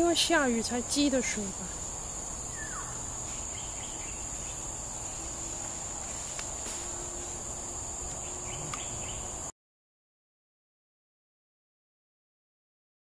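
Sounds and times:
insect chorus droning: 0.0s - 9.5s.

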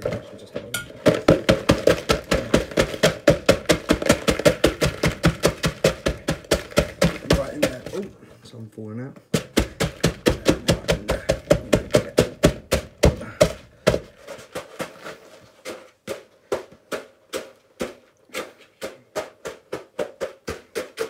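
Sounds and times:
pounding tool knocking plastic bowl: 0.8s - 8.0s, 9.3s - 14.2s.

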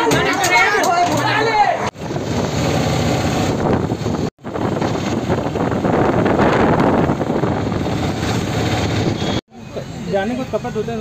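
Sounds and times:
moving road vehicle: 1.9s - 11.0s
wind buffeting microphone: 2.0s - 9.4s.

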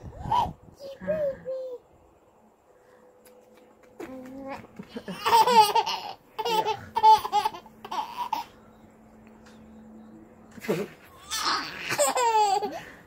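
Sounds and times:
baby laughing: 4.6s - 8.5s, 11.2s - 13.0s.

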